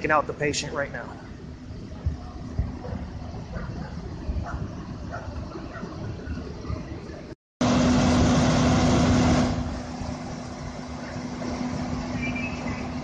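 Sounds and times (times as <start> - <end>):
rushing noise: 0.0 - 13.0
vehicle engine idling: 7.6 - 13.0.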